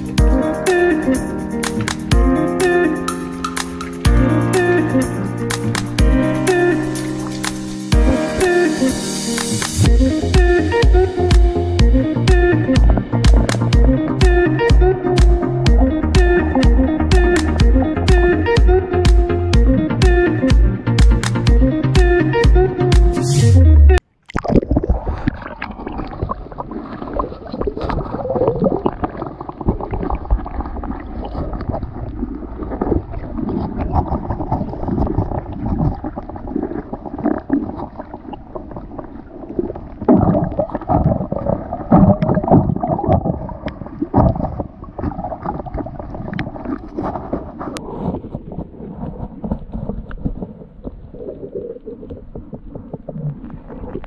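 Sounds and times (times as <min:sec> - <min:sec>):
muffled underwater sloshing: 0:24.3 - 0:54.0.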